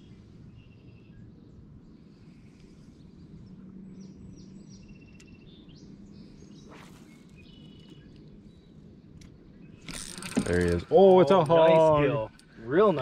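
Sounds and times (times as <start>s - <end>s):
bird chirps: 3.0s - 10.2s
faint click: 5.1s - 5.4s.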